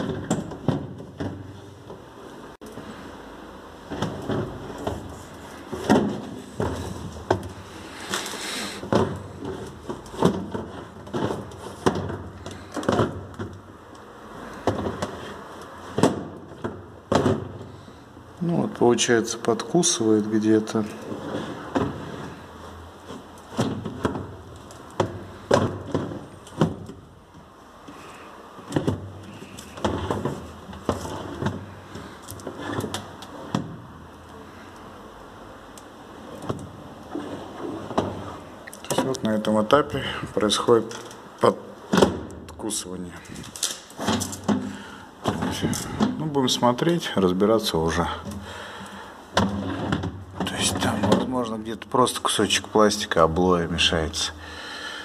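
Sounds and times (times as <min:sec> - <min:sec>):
plastic drawer sliding: 0:00.0 - 0:02.0, 0:03.8 - 0:13.7, 0:14.3 - 0:17.8, 0:20.6 - 0:27.1, 0:27.9 - 0:34.0, 0:36.2 - 0:41.2, 0:43.0 - 0:46.3, 0:49.3 - 0:51.4
drawer knocks and scrapes: 0:03.9 - 0:07.6, 0:08.8 - 0:13.5, 0:14.6 - 0:17.7, 0:21.1 - 0:22.4, 0:28.7 - 0:31.8, 0:49.4 - 0:51.3
plastic drawer sliding on runners: 0:20.8 - 0:22.4, 0:28.6 - 0:33.8, 0:49.4 - 0:51.3.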